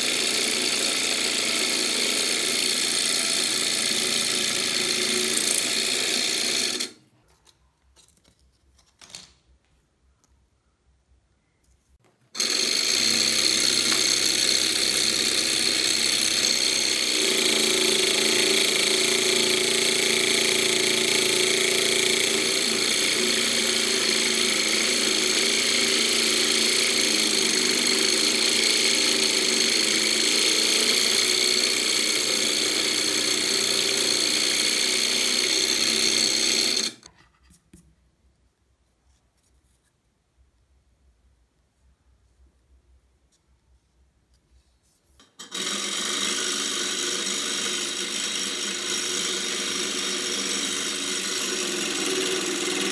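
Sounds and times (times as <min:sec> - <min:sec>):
scroll saw cutting wood: 0:00.0 - 0:07.0, 0:12.4 - 0:37.8, 0:45.3 - 0:52.9.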